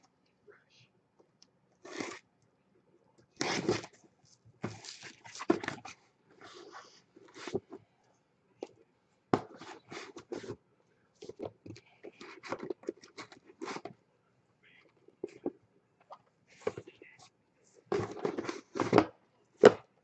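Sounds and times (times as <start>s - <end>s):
shrink-wrapped boxes rustling: 4.6s - 6.7s.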